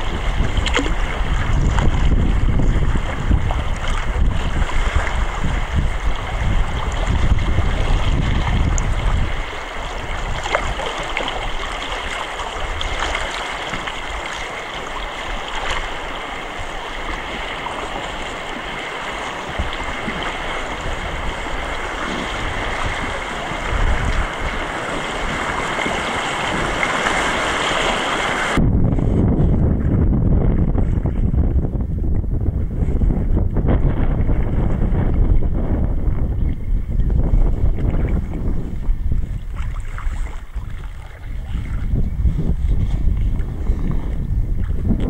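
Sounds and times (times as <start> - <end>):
rushing white water: 0.0 - 28.7
wind rumble on microphone: 0.0 - 45.0.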